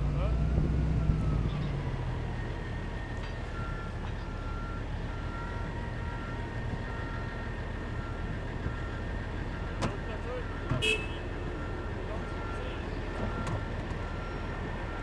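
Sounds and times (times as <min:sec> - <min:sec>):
reversing alarm beeping: 0:00.4 - 0:15.0.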